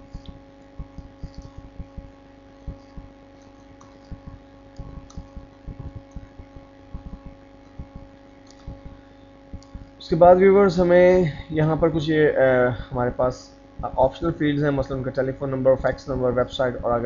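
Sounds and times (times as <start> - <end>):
steady electrical hum: 0.0 - 17.0
computer keyboard typing: 0.8 - 2.0, 4.8 - 7.4.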